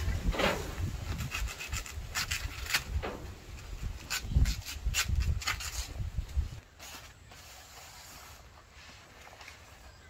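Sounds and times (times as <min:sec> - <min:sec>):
dull thump: 0:00.2 - 0:00.9, 0:02.9 - 0:03.4
knife scraping leaf: 0:00.4 - 0:09.0.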